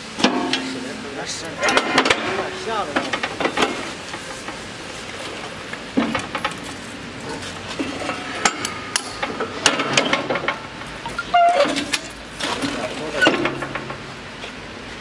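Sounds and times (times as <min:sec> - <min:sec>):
soil brick press clanking: 0:00.0 - 0:04.6, 0:05.9 - 0:14.1
sharp metal knocks: 0:00.2 - 0:03.9.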